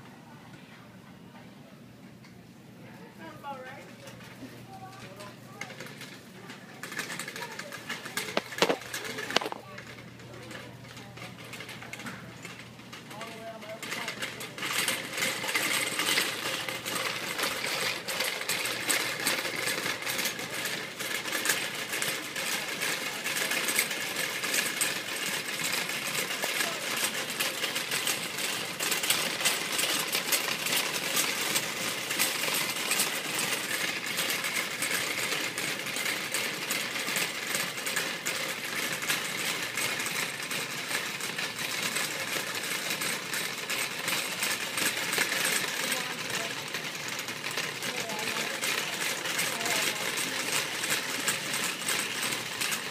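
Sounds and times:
shopping cart rattling: 3.0 - 52.9.

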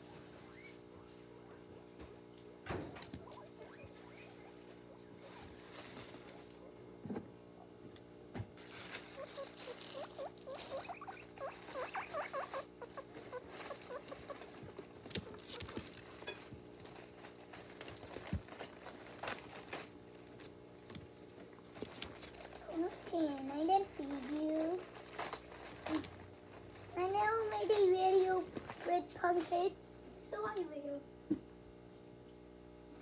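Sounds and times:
guinea pig squeaking: 0.0 - 1.8, 2.7 - 6.8, 8.7 - 19.9, 21.8 - 26.1
plastic bag crinkling: 8.6 - 20.6, 21.7 - 29.6.

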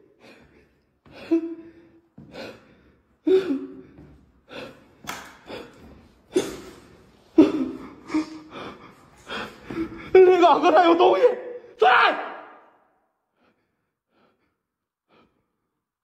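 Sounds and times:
person gasping for breath: 0.0 - 10.2.

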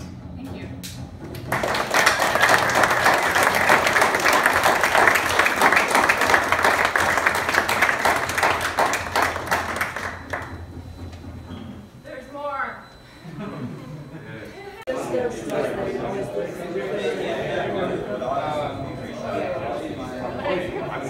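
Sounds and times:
background music: 0.0 - 12.1
audience applauding: 1.2 - 11.2.

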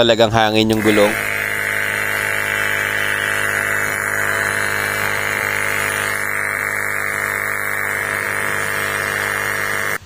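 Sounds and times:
air compressor humming: 0.7 - 10.0.

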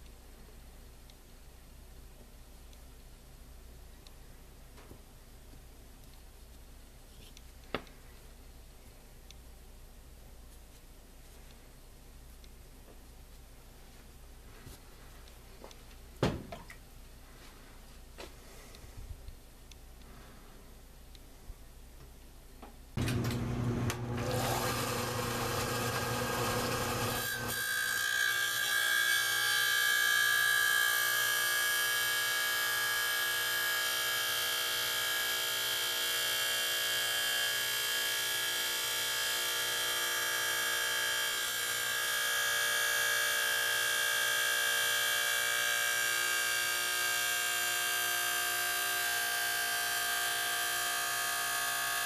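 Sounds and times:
grinding wheel grinding stone: 24.1 - 28.7.

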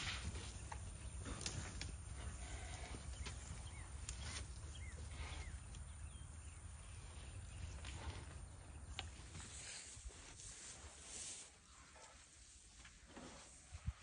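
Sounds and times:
bird chirps: 3.1 - 7.7.

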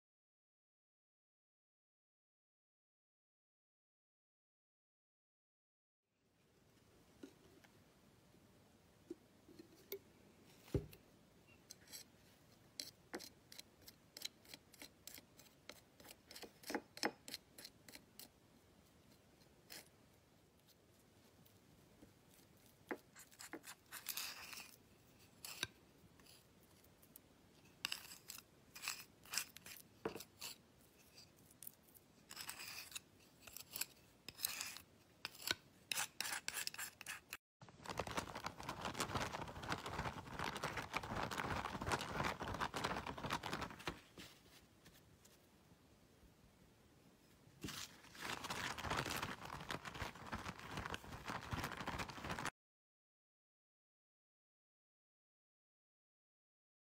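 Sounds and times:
palette knife scraping dish: 11.6 - 12.1, 12.7 - 18.3, 22.9 - 26.4, 27.7 - 37.4.

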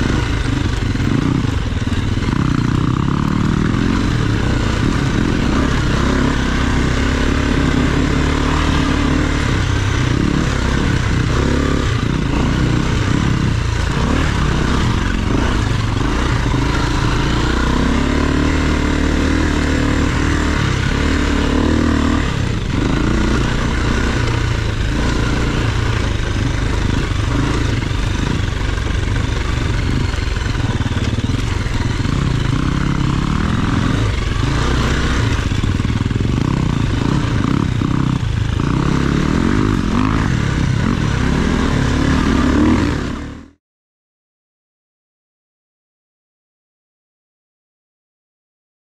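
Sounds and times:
dirt bike engine revving: 0.0 - 43.6
bike rattling: 12.1 - 39.6.

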